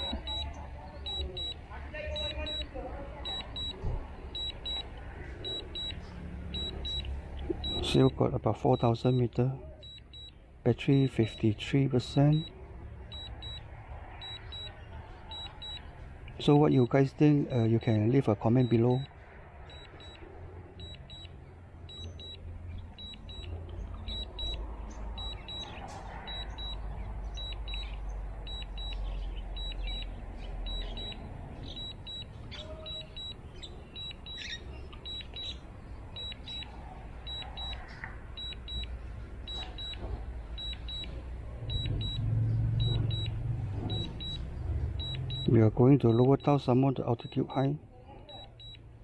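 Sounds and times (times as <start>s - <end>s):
high-pitched electronic double beeps: 0.0s - 11.4s, 13.1s - 15.9s, 20.8s - 22.4s, 23.0s - 36.7s, 37.3s - 38.9s, 41.7s - 46.6s.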